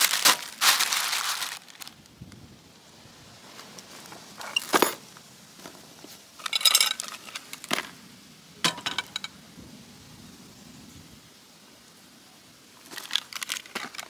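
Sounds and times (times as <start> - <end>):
metal tongs clinking on glass bowl: 6.5 - 7.1.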